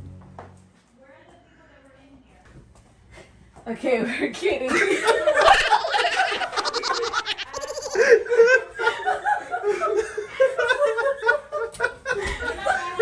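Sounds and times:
people laughing hard: 4.7 - 13.0.

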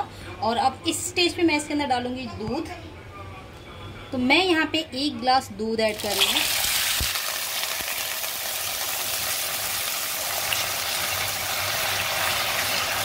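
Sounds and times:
milk sizzling and bubbling: 6.0 - 13.0.

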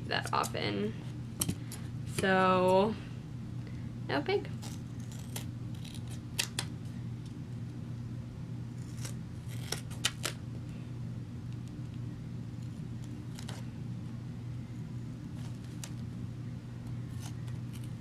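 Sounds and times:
steady low hum: 0.0 - 18.0
scissors snipping tape: 4.6 - 6.7, 8.8 - 10.4, 13.3 - 13.6, 17.1 - 18.0.

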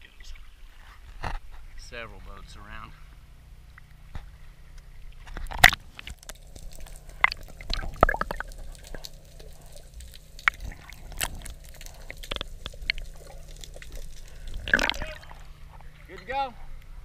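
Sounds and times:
underwater sloshing and bubbles: 0.0 - 17.0
sharp clicks underwater: 3.7 - 16.2
splash into water: 6.4 - 15.6.

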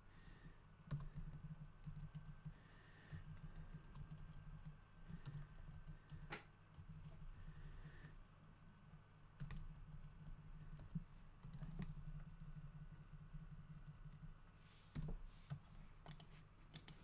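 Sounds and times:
computer keyboard typing: 0.9 - 8.1, 9.4 - 14.3, 16.1 - 17.0.

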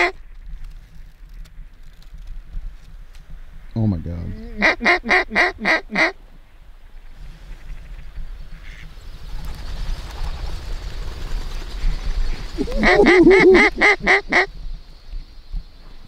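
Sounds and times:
low rush of wind: 0.0 - 16.0
loud duck quacks: 12.6 - 14.5.

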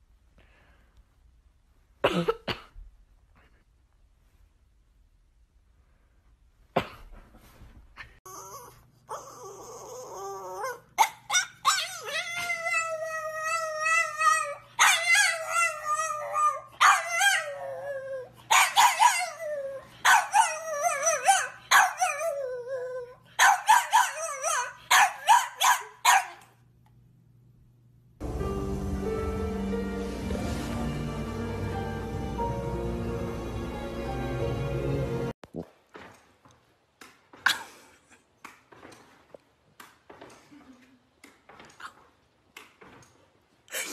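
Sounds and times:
dog howling and barking: 8.5 - 26.3.

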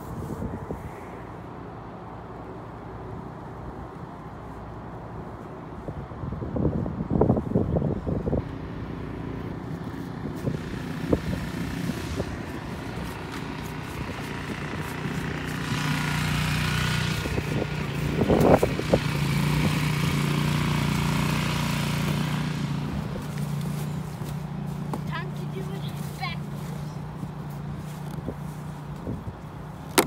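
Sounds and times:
vehicle engine running: 8.1 - 30.0.

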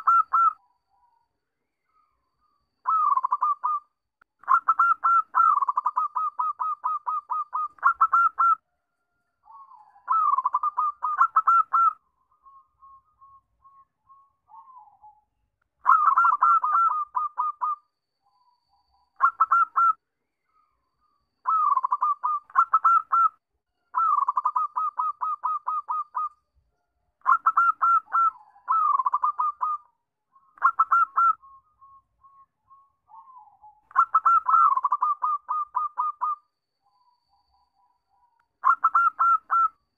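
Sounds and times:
dove cooing in rapid staccato bursts: 0.0 - 0.6, 2.9 - 3.8, 4.4 - 8.6, 10.1 - 12.0, 15.8 - 17.8, 19.2 - 20.0, 21.5 - 23.3, 24.0 - 26.3, 27.2 - 29.9, 30.6 - 31.4, 33.9 - 36.4, 38.6 - 39.7.

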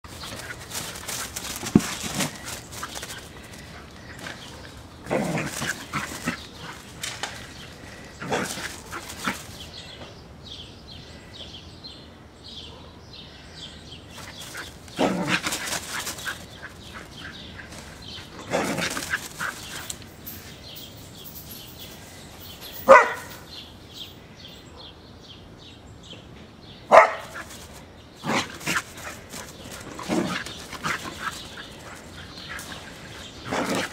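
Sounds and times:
dog barking: 12.7 - 13.0, 22.8 - 23.4, 26.9 - 27.5.

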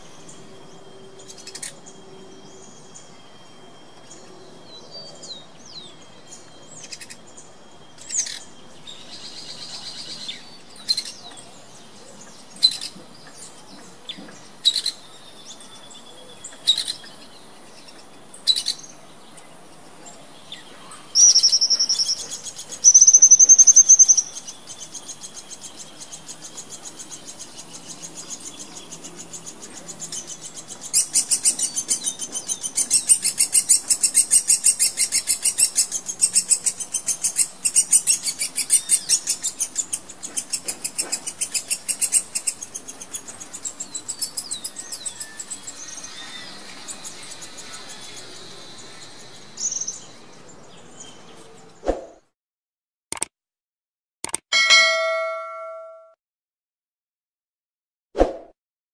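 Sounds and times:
woodpecker high chirps: 21.1 - 45.8.

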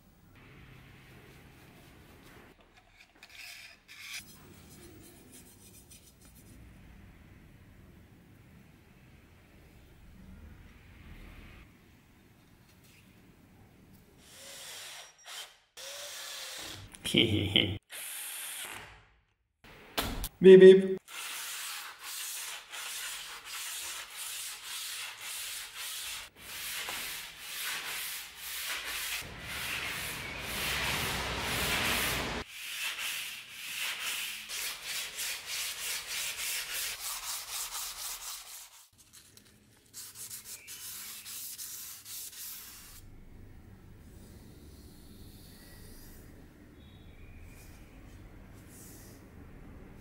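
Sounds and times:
abrasive scraping metal blade: 2.9 - 4.4.

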